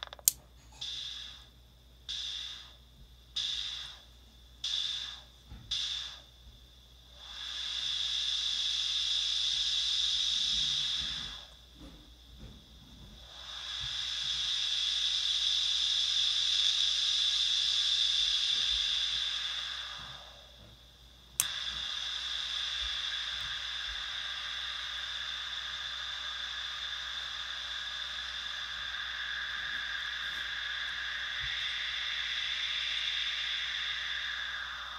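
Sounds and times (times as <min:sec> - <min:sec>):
click: 0:00.0 - 0:00.9, 0:21.4 - 0:21.8
synth white noise hiss: 0:00.0 - 0:34.9.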